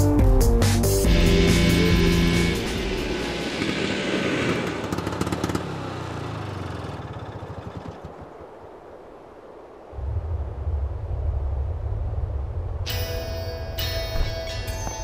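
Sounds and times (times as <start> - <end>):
music cue: 0.0 - 3.6, 12.9 - 15.0
noisy wash: 1.1 - 14.6.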